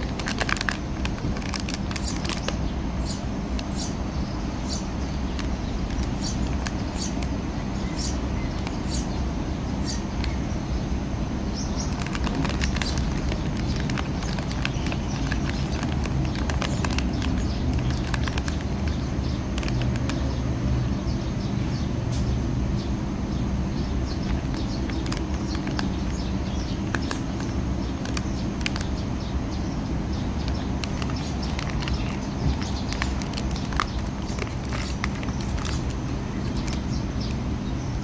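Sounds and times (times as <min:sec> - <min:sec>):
plastic wrapper crinkling: 0:00.0 - 0:02.6, 0:05.1 - 0:07.4, 0:11.8 - 0:20.3, 0:24.2 - 0:29.0, 0:30.4 - 0:37.4.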